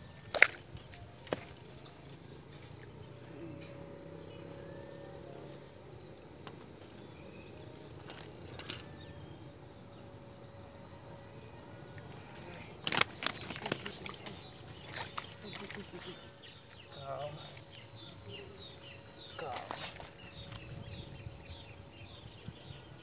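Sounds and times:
fish knocking in grass: 0.3s - 0.6s, 1.2s - 1.6s, 12.8s - 14.3s.

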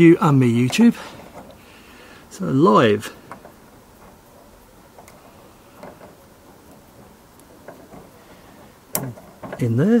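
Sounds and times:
handling noise: 2.6s - 10.0s.

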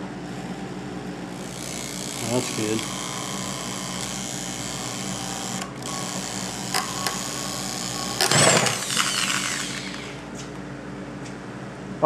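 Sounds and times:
electric drill running: 0.3s - 10.4s
metal extractor snapping crack: 8.2s - 10.1s.

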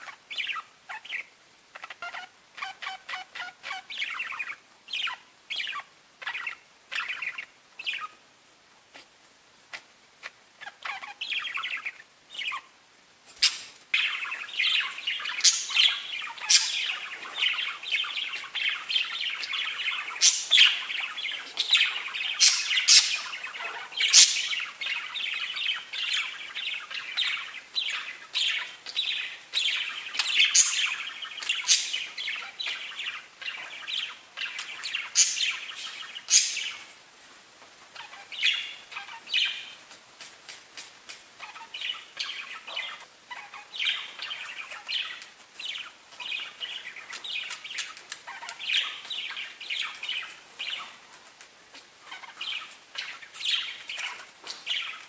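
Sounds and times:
budgerigars chattering and warbling: 0.0s - 8.2s, 9.7s - 12.7s, 13.4s - 36.9s, 37.9s - 55.0s
sharp high-pitched bird calls: 13.4s - 36.9s, 37.9s - 51.0s.

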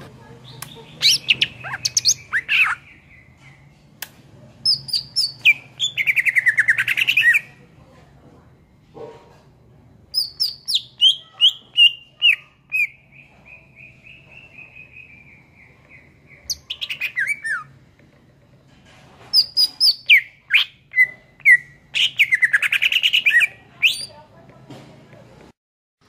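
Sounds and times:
bird singing whistled phrases: 10.2s - 15.8s, 16.4s - 17.7s, 19.4s - 24.1s.

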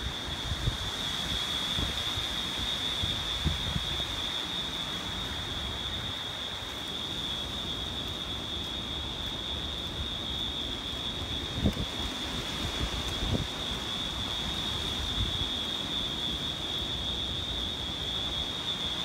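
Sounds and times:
wind buffeting on microphone: 0.0s - 4.3s, 11.1s - 14.0s
hurricane wind gusting through trees: 0.0s - 19.0s
rain: 0.0s - 19.0s.

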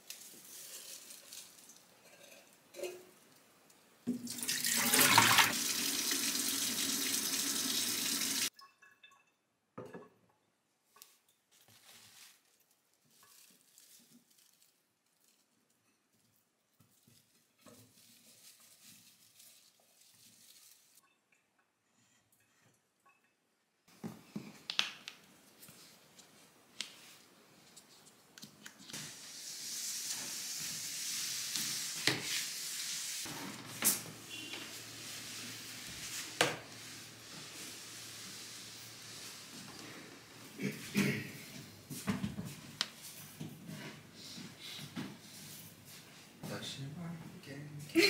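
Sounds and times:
glass and plant stems handled: 10.9s - 21.4s.

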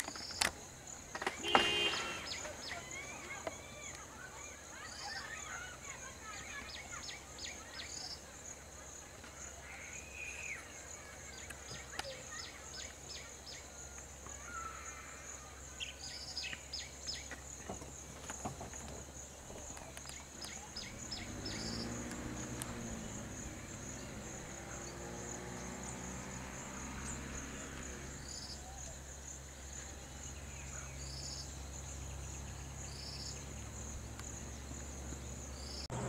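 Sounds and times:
insect chorus buzzing: 0.0s - 36.0s
low vehicle engine hum: 18.7s - 36.0s.

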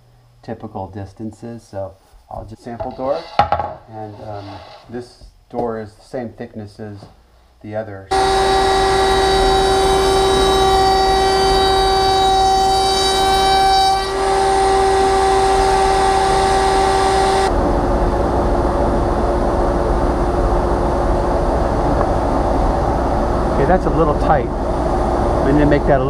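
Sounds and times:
rough cutting noise: 8.1s - 17.5s
router high whine: 8.1s - 17.6s.

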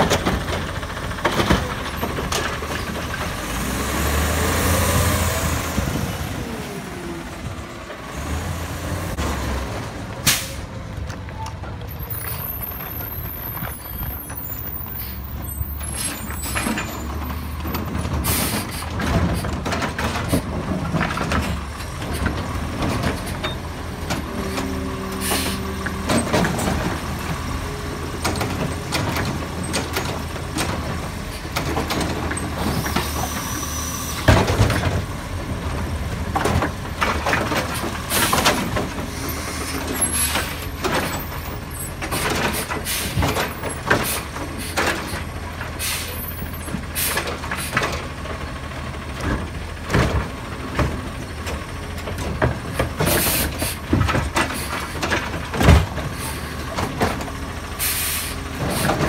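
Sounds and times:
diesel engine running: 0.0s - 59.0s
air brake hiss: 10.3s - 10.7s, 25.2s - 25.7s, 45.8s - 46.2s, 57.8s - 58.9s
hydraulic arm clunks and bangs: 15.8s - 27.4s, 28.1s - 35.2s, 36.2s - 45.8s, 49.2s - 57.4s.

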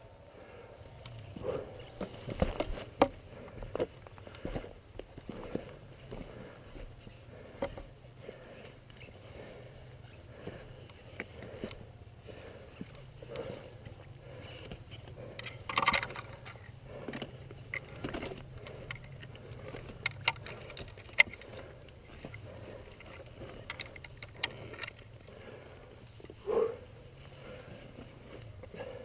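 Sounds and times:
gloved hands handling motorcycle: 0.9s - 29.0s.

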